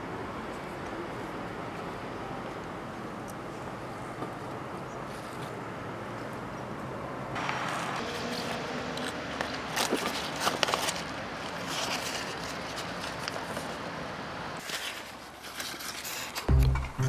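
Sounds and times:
outdoor background noise: 0:00.0 - 0:17.0
paper map crinkling: 0:07.7 - 0:14.0, 0:14.6 - 0:16.8.

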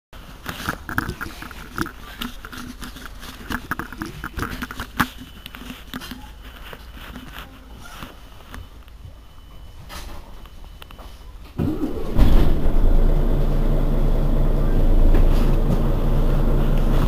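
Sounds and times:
bus engine rumbling: 0:11.4 - 0:17.0.

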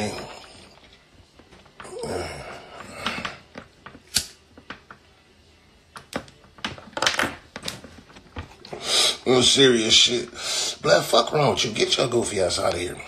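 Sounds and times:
lighter clicking: 0:04.1 - 0:04.4.

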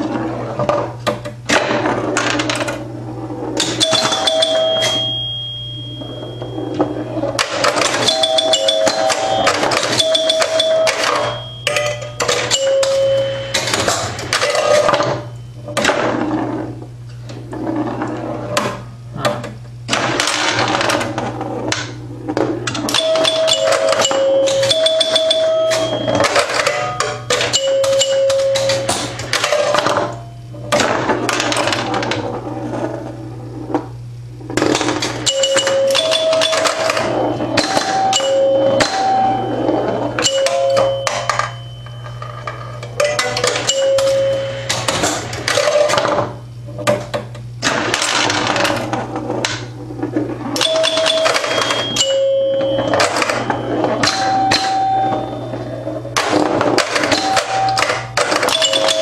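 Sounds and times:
pinball relays clicking and clacking: 0:00.0 - 0:33.1, 0:34.5 - 0:59.0
steady electrical hum: 0:00.0 - 0:59.0
bell-like chime tones: 0:03.8 - 0:07.1.

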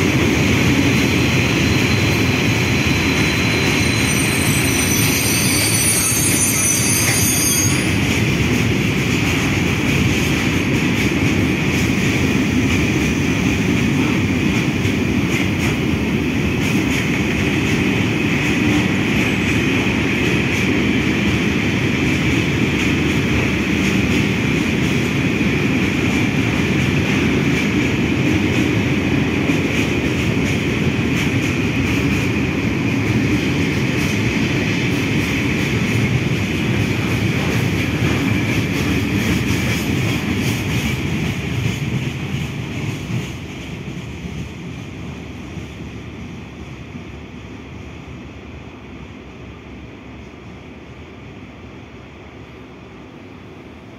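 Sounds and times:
freight wagons rumbling on rails: 0:00.0 - 0:52.8.

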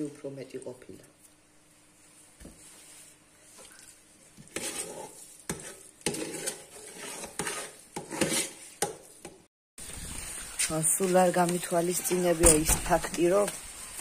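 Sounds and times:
metal spoon scraping rice in pot: 0:04.4 - 0:09.2.

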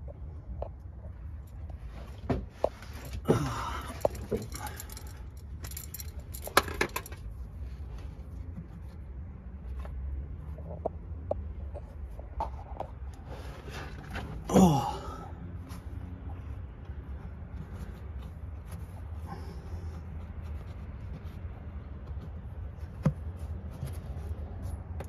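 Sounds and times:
clinks and scrapes on metal parts: 0:03.9 - 0:08.3.

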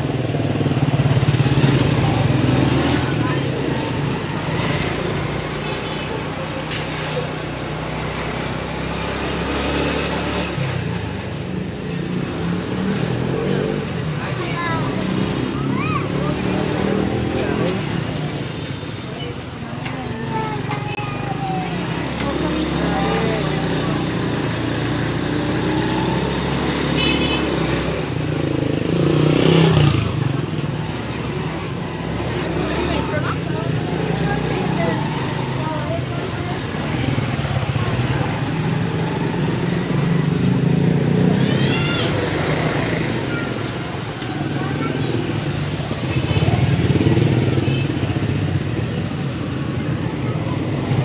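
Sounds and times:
motorcycle passing by: 0:00.0 - 0:05.9, 0:08.2 - 0:18.5, 0:21.8 - 0:51.0.

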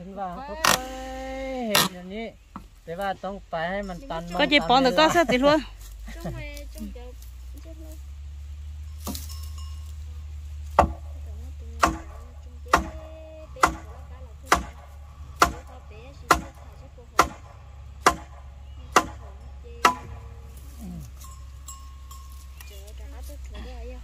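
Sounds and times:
steady low hum: 0:00.0 - 0:24.0
sharp striking blows: 0:10.7 - 0:11.2, 0:11.8 - 0:20.6.

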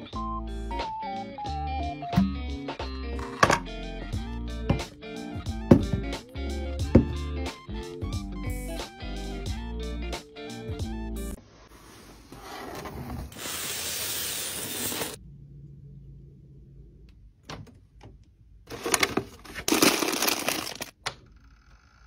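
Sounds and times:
fridge humming: 0:03.2 - 0:07.4
cardboard and packaging rustling: 0:18.7 - 0:20.9.

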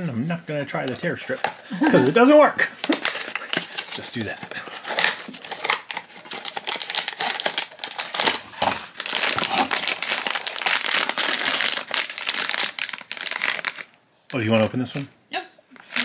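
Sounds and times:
foil pouch crinkling: 0:02.1 - 0:14.5.

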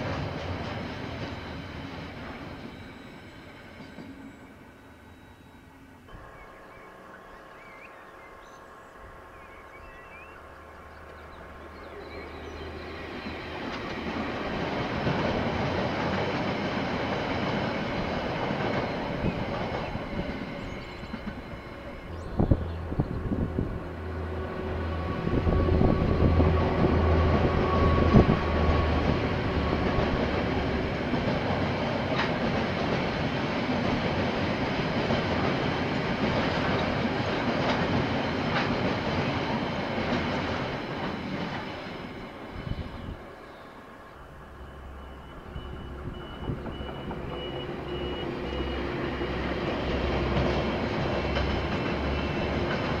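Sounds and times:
locomotive engine drone: 0:00.0 - 0:53.0
train rumbling: 0:00.0 - 0:53.0
wagons rolling on rails: 0:25.8 - 0:43.5, 0:44.7 - 0:53.0.

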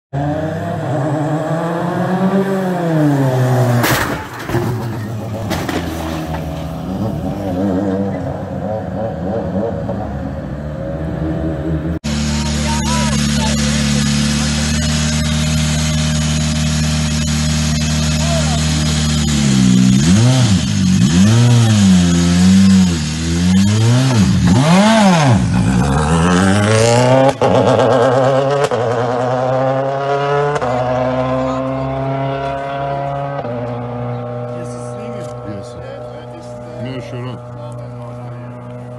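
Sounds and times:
car engine revving: 0:00.1 - 0:38.9
loud crash of impact: 0:03.7 - 0:06.9.

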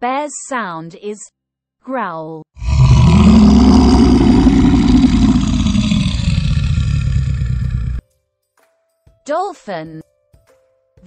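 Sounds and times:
bear growling: 0:02.6 - 0:08.0.

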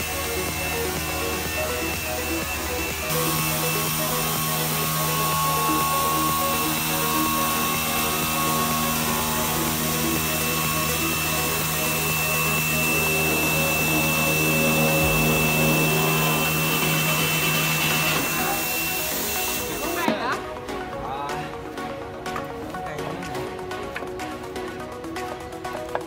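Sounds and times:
router spindle whine cutting wood: 0:00.0 - 0:20.1.

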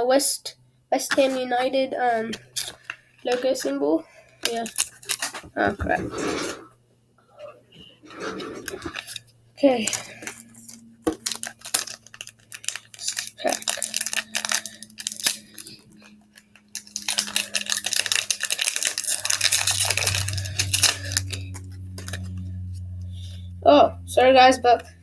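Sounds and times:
low hum: 0:00.5 - 0:25.0
foil wrapper tearing and crinkling: 0:02.3 - 0:03.7, 0:04.4 - 0:05.5, 0:08.2 - 0:22.4.

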